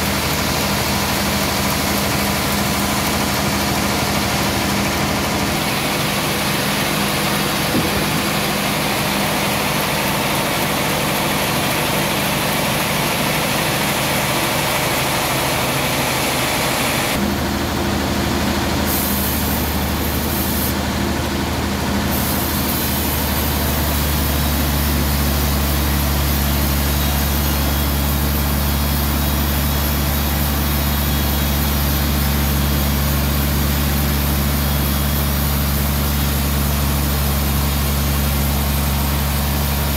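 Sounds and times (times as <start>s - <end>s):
band saw machine hum: 0.0s - 39.9s
saw blade hissing: 18.9s - 20.8s, 22.1s - 39.9s.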